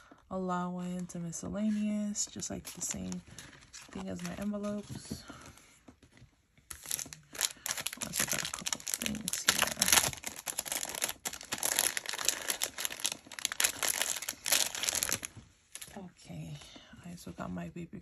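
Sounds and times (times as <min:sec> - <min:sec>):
plastic bag crinkling: 0:02.4 - 0:05.3, 0:06.7 - 0:16.0.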